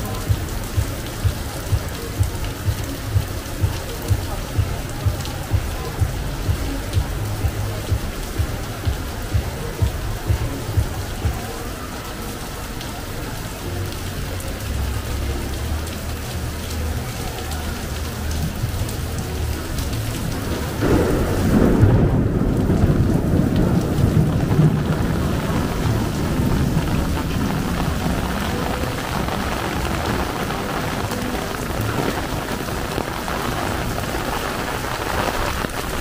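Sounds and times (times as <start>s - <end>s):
heavy rain falling: 0.0s - 36.0s
low rumble of thunder: 20.4s - 31.1s.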